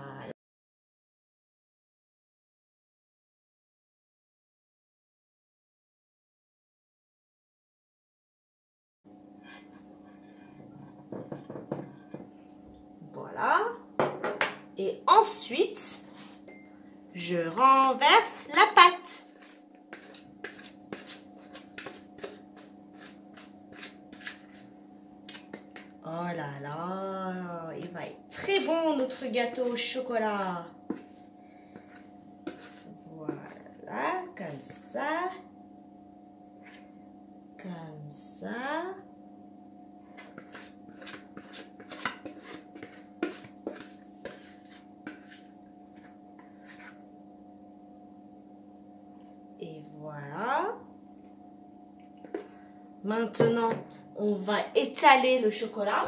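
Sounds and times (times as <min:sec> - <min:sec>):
faint steady hum: 0:09.1 - 0:56.0
whisk scraping plastic bowl: 0:18.3 - 0:24.7, 0:27.8 - 0:33.5, 0:40.2 - 0:47.0.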